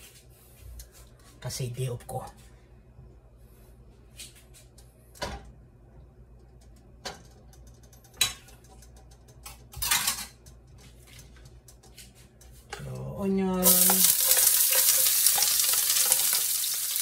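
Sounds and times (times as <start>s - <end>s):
dishes and utensils clinking: 9.8s - 10.4s.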